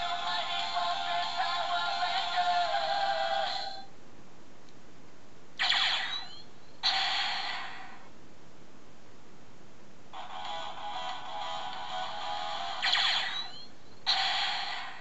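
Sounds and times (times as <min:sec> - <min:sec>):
electronic blast: 0:05.6 - 0:08.0, 0:12.8 - 0:15.0
electronic zap with sliding pitch: 0:05.6 - 0:08.0, 0:12.8 - 0:15.0
toy speaker music: 0:10.2 - 0:13.6.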